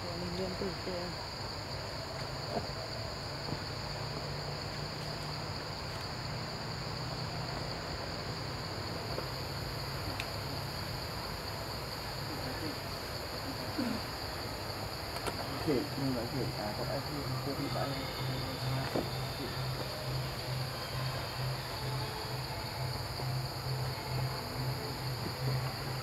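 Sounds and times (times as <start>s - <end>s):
insects buzzing: 0.0s - 26.0s
higher insect buzz: 8.3s - 26.0s.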